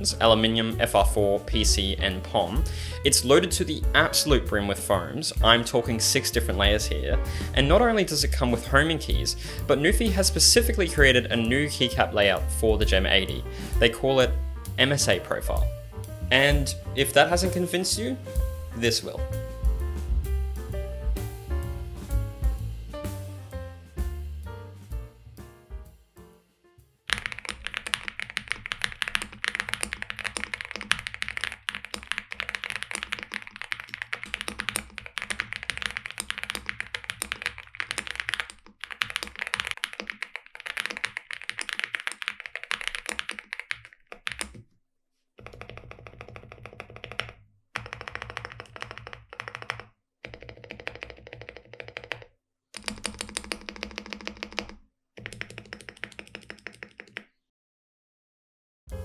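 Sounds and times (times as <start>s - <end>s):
mechanical keyboard typing: 27.1s - 44.6s, 45.4s - 57.3s.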